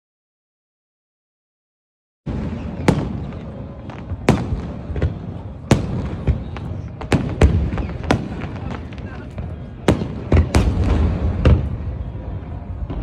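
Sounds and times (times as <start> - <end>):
small firework pops: 2.3 - 11.9.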